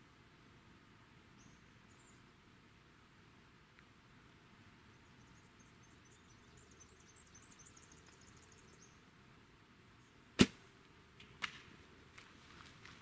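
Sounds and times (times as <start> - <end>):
crackling in brush: 11.2 - 13.0.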